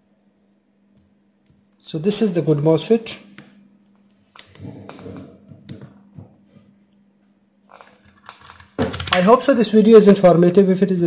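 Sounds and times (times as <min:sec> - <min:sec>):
faint steady hum: 0:00.0 - 0:11.0.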